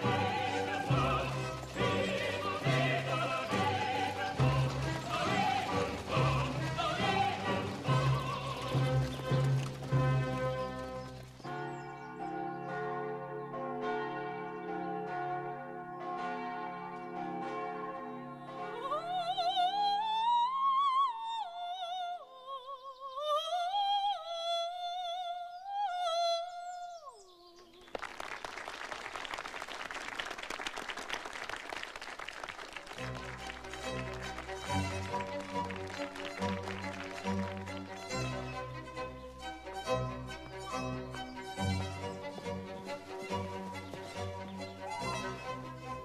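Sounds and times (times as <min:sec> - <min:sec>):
soprano singing operatic phrase: 0:00.0 - 0:09.2
applause: 0:00.0 - 0:11.5, 0:27.8 - 0:39.1
church bells ringing: 0:00.0 - 0:20.3, 0:33.0 - 0:46.0.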